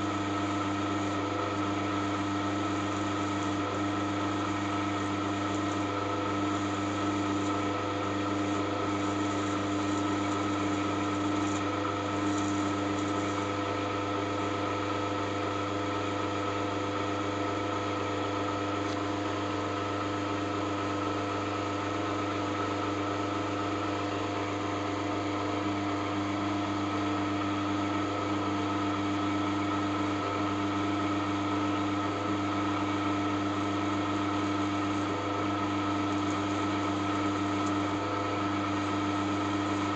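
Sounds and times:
electric drill running: 0:17.4 - 0:39.9.

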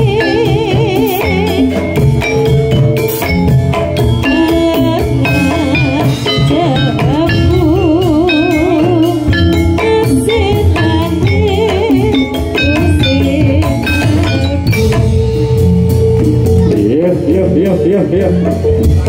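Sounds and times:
person singing with vibrato: 0:00.0 - 0:02.4, 0:04.2 - 0:15.2
drum beating: 0:00.0 - 0:19.0
ringing metallophone notes: 0:00.0 - 0:19.0.

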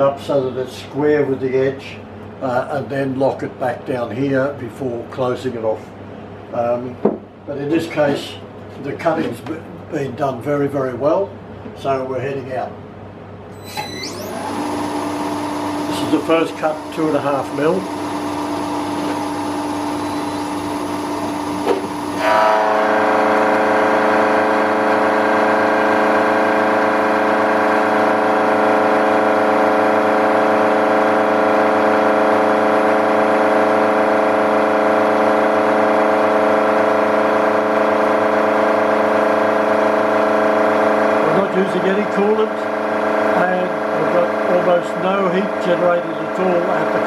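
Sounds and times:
milling machine cutting steel: 0:13.6 - 0:32.2.

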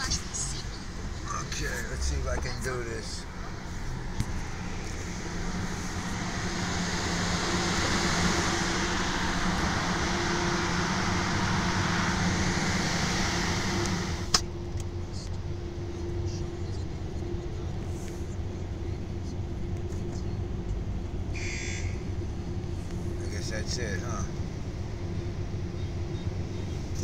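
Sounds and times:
car wash hissing rush: 0:00.0 - 0:15.0
low steady hum: 0:00.0 - 0:27.0.

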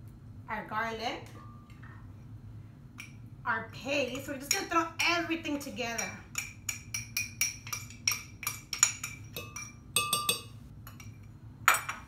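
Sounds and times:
spoon tapping and scraping jar: 0:05.9 - 0:12.0.

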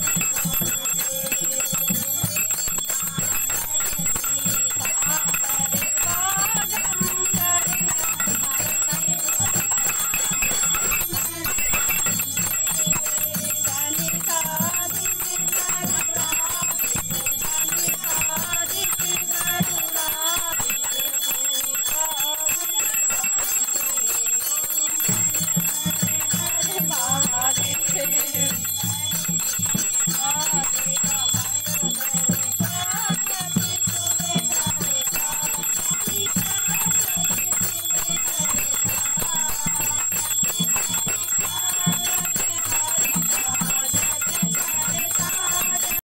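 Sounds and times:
small hand bell ringing: 0:00.0 - 0:46.0
women singing in chorus: 0:00.0 - 0:46.0.

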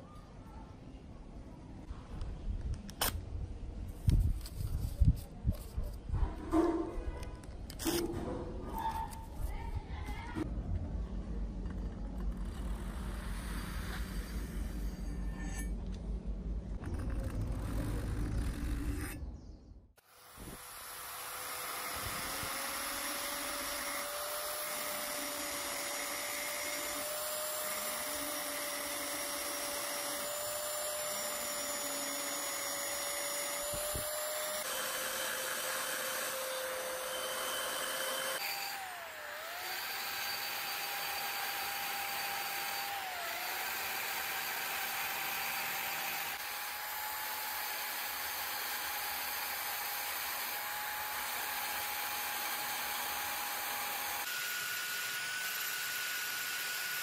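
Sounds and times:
rotary tool grinding steel: 0:12.3 - 0:15.8, 0:16.9 - 0:19.3, 0:20.0 - 0:57.0.

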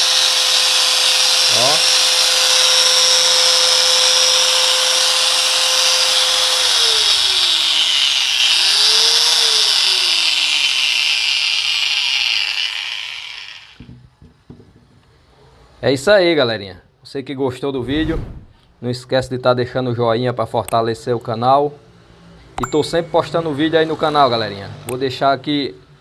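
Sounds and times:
motor winding down: 0:00.0 - 0:13.8
angle grinder whining: 0:00.0 - 0:14.0.

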